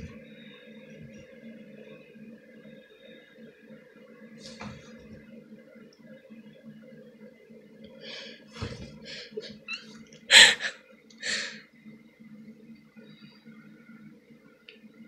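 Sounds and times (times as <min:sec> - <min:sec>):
cat clawing at towel: 0:04.4 - 0:05.2, 0:08.6 - 0:09.0.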